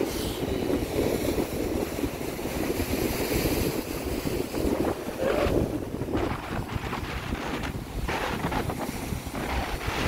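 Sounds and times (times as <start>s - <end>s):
waves washing against rocks: 0.0s - 10.0s
wind buffeting microphone: 0.0s - 10.0s.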